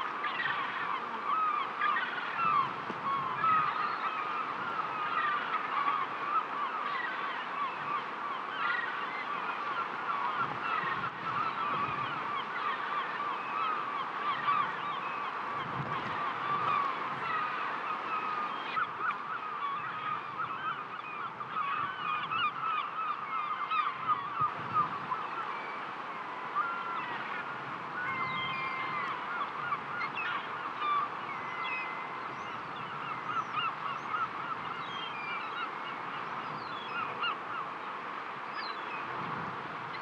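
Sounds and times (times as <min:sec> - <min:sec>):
faint surf: 0:00.0 - 0:40.0
flock of birds calling: 0:00.0 - 0:40.0.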